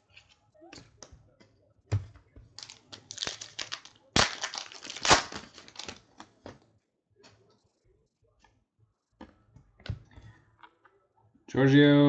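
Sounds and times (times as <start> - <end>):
wrapper tearing and crinkling: 2.6 - 6.3.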